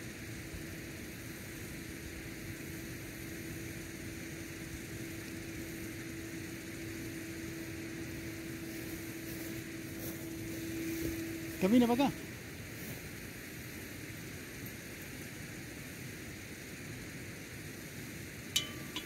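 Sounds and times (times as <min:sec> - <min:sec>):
background hiss: 0:00.0 - 0:19.0
singing bowl ringing: 0:18.5 - 0:19.0.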